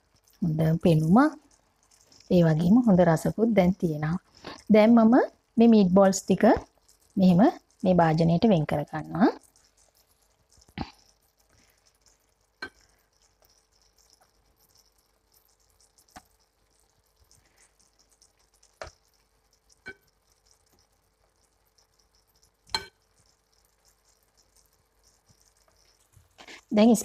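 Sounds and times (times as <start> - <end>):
sauce sizzling: 0.0 - 27.0
tongs clinking on pan and bowl: 12.6 - 12.9, 22.6 - 23.3.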